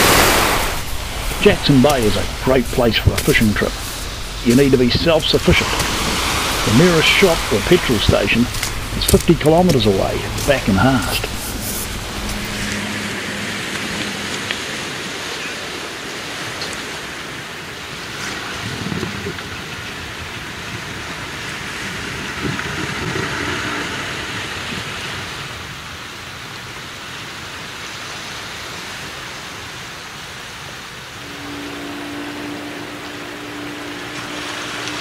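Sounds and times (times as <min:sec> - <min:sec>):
waves washing onto shingle: 0:00.0 - 0:35.0.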